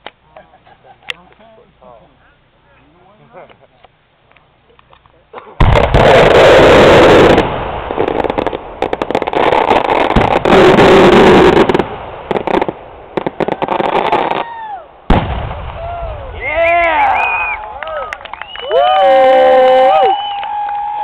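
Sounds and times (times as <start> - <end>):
firework crackles and pops: 4.3 - 21.0
firework blast: 5.6 - 21.0.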